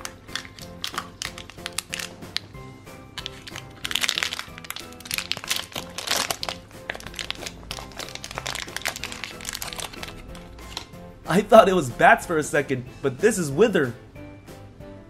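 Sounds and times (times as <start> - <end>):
foil wrapper crinkling: 0.0 - 2.6, 3.2 - 10.9
background music: 0.0 - 15.0.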